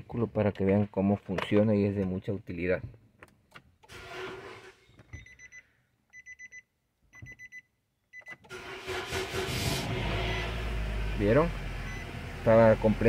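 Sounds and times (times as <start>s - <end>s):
car warning chime beeping: 5.2s - 8.5s, 11.8s - 13.0s
engine cranking: 8.5s - 10.0s.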